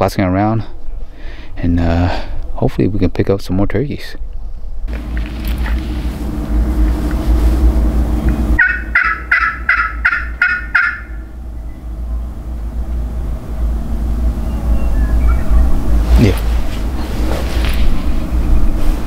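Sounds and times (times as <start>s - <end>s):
low rumble: 4.3s - 19.0s
turkey gobbling: 8.6s - 11.2s.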